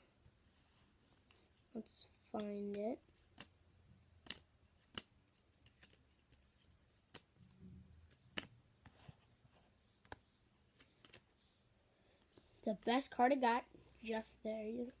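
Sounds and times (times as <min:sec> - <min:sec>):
soft rustle of cards: 0:00.0 - 0:15.0
sharp clicks of cards: 0:04.2 - 0:06.0, 0:07.1 - 0:07.4, 0:08.3 - 0:08.5.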